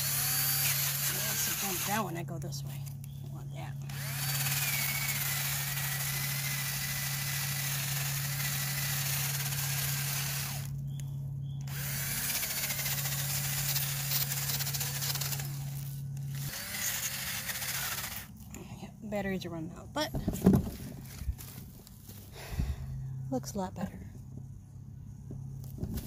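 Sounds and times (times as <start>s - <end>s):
cordless drill motor hum: 0.0s - 2.2s, 2.8s - 18.7s
wire brush scratching tree bark: 0.0s - 10.7s, 11.7s - 18.4s.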